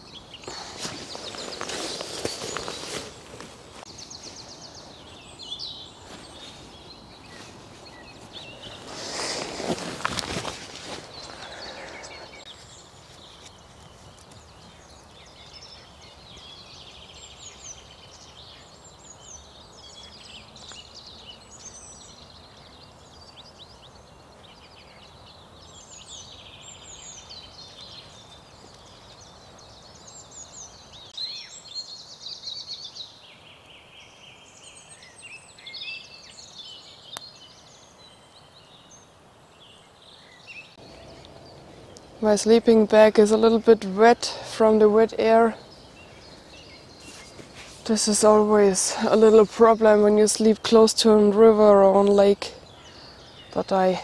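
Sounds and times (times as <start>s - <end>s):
songbirds chirping and trilling: 0.0s - 54.0s
brief rustle: 0.4s - 4.4s, 8.6s - 14.4s, 47.0s - 47.9s.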